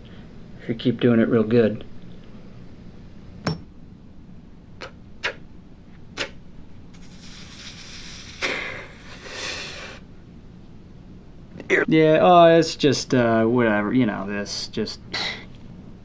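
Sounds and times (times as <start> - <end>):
man breathing in: 7.1 - 10.0.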